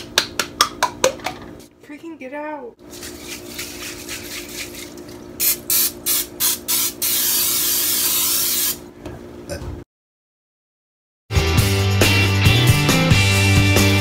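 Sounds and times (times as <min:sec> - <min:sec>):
aerosol spray can hissing: 0:05.4 - 0:08.8.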